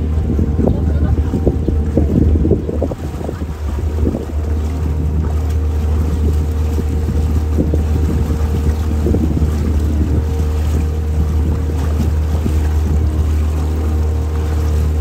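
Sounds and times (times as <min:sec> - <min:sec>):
boat motor humming: 0:00.0 - 0:15.0.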